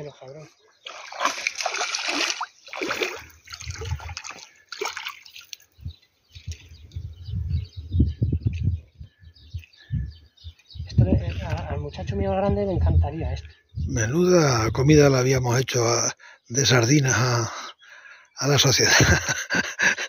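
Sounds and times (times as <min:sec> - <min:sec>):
fish splashing at water surface: 0:00.8 - 0:05.7.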